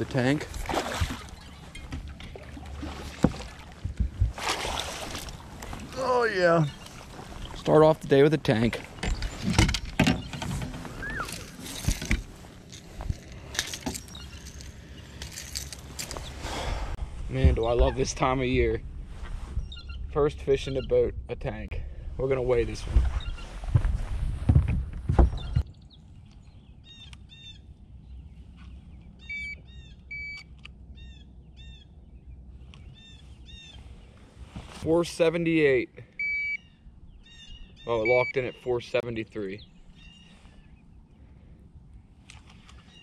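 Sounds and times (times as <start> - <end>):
electronic scale beeps: 29.3 - 30.5, 36.2 - 36.6.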